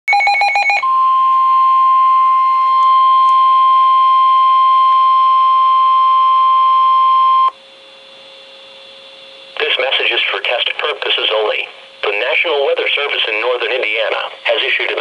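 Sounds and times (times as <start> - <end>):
steady alarm tone: 0.1 - 7.6
faint hum: 0.8 - 15.0.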